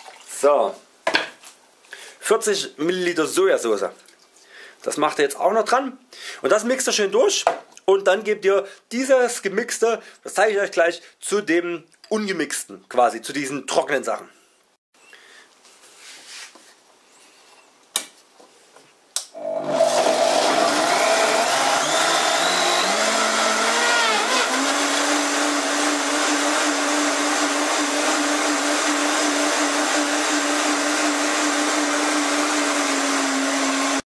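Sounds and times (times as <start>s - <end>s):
blender motor whining: 19.4s - 34.0s.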